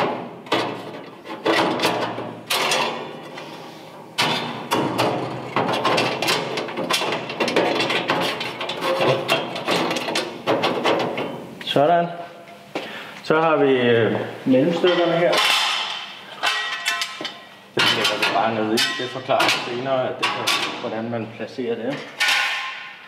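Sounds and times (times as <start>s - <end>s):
metal plates clanking on metal: 0.0s - 3.4s, 4.2s - 11.4s, 14.8s - 20.9s, 22.0s - 23.0s.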